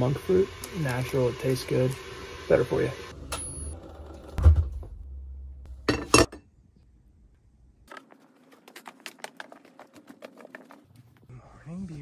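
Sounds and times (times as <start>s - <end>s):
crockery clinking: 5.9s - 6.4s.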